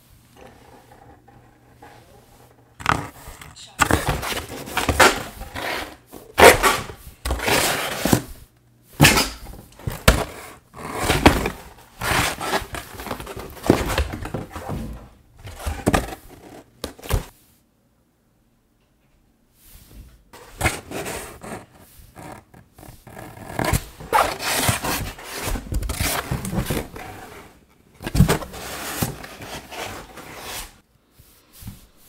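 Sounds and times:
cardboard flaps rustling: 2.8 - 8.4, 9.0 - 17.3, 20.4 - 30.8.

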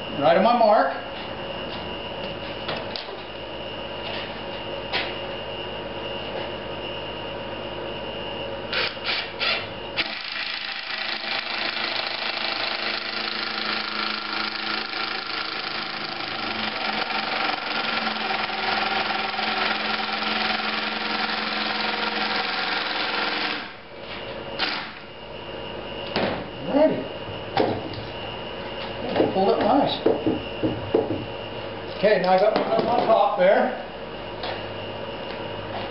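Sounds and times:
knocks on wood: 30.0 - 31.3.

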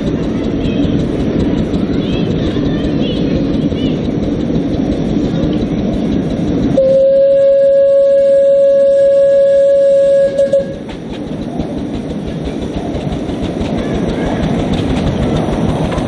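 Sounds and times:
miniature train running: 0.0 - 16.0
steam whistle: 6.8 - 10.8.

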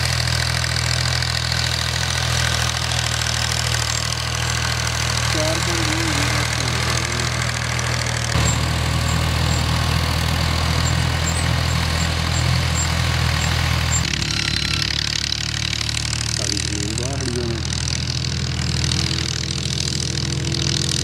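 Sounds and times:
engine running at low revs: 0.0 - 21.0.

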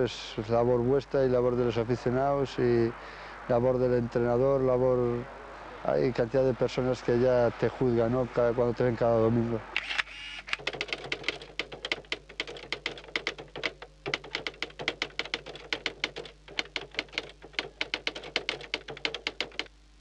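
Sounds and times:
typewriter key strikes: 10.6 - 19.7.

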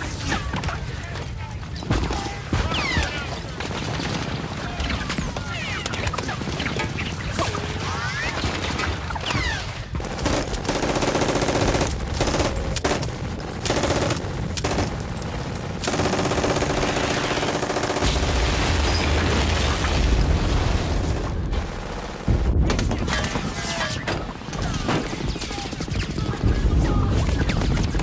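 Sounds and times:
machine-gun fire: 10.0 - 23.6.

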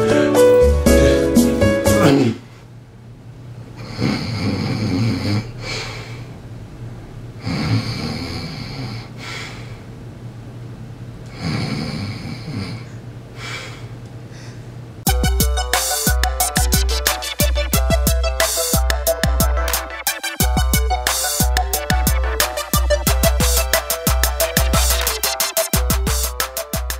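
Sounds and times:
man snoring: 3.8 - 6.1, 7.4 - 9.2, 11.3 - 13.0.

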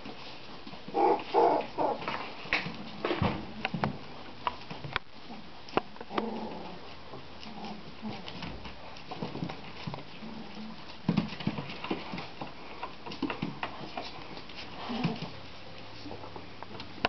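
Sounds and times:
puppy whines and grunts: 0.9 - 2.1.

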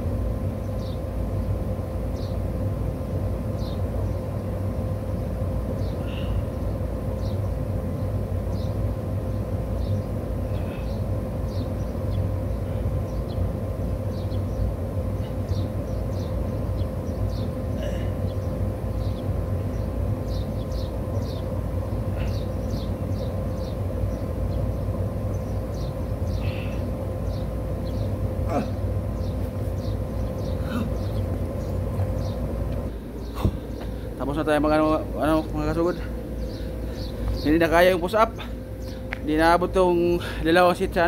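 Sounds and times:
constant hum: 0.0 - 41.0
low outdoor rumble: 0.0 - 41.0.

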